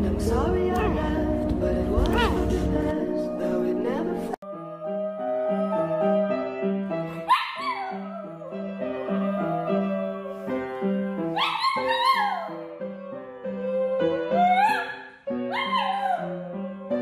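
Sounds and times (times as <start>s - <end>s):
piano repeated chords: 0.0s - 17.0s
small dog howling: 4.5s - 6.5s, 7.2s - 10.5s, 11.4s - 12.6s, 14.0s - 16.4s.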